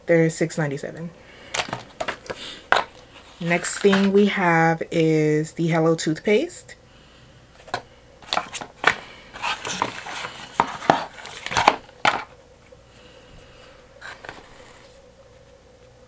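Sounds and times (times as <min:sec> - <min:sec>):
cardboard carton crinkling and tearing: 0:01.5 - 0:04.2, 0:07.6 - 0:12.3.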